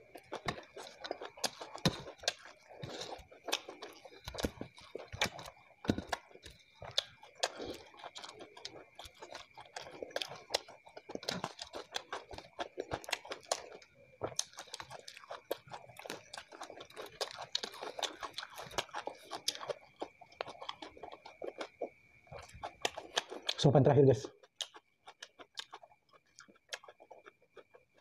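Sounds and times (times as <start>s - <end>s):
chewing with wet mouth clicks: 0.1s - 23.6s, 24.2s - 28.0s.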